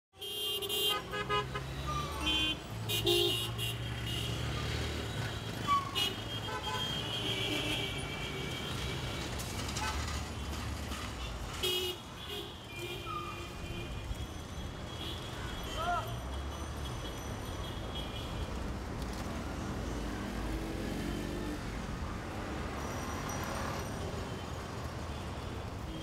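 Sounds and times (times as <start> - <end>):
vehicle horns honking: 0.2 - 10.6, 11.2 - 18.4
traffic engines rumbling: 0.2 - 26.0.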